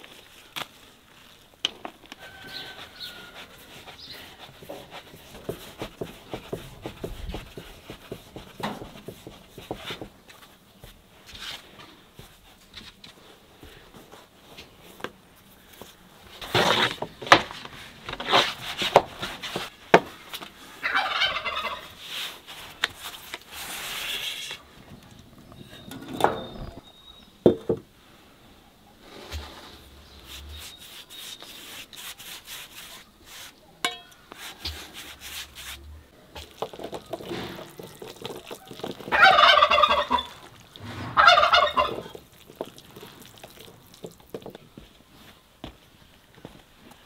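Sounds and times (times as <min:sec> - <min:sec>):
hands tapping and rustling: 0:00.0 - 0:20.6, 0:33.8 - 0:39.2, 0:41.9 - 0:47.0
turkey gobbling: 0:20.8 - 0:21.9, 0:38.3 - 0:40.6, 0:41.2 - 0:42.2.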